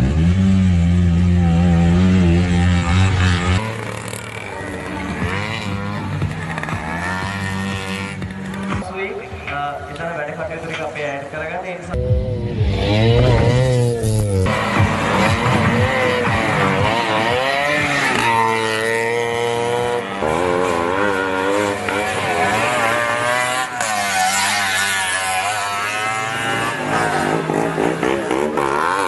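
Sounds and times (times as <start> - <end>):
auto-rickshaw engines revving: 0.0 - 29.0.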